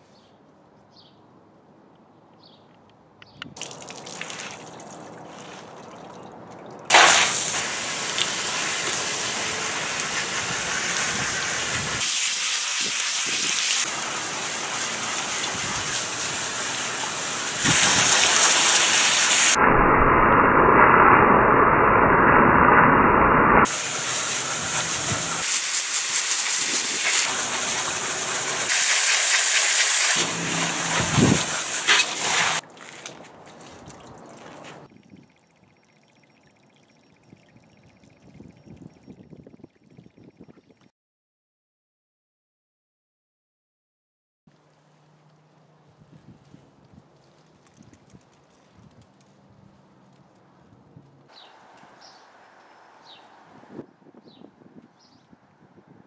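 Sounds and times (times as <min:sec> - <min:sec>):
water splashing into tub: 0:03.6 - 0:09.0
hose spray hissing on filter: 0:06.9 - 0:19.6, 0:23.7 - 0:32.6.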